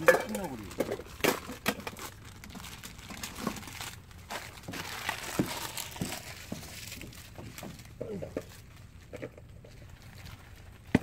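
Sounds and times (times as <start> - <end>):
plastic packets crinkling: 0.0 - 11.0.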